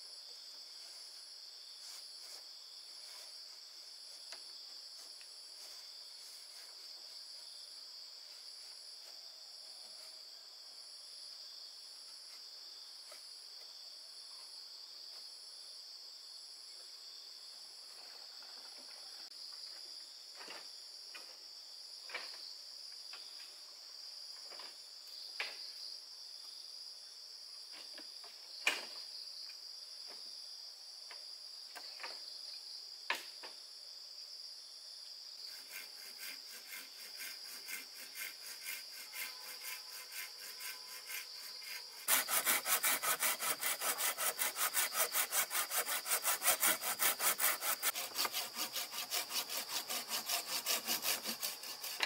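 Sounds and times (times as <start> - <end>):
insects chorus: 0.0 - 52.0
pulsing high insect trill: 35.3 - 52.0.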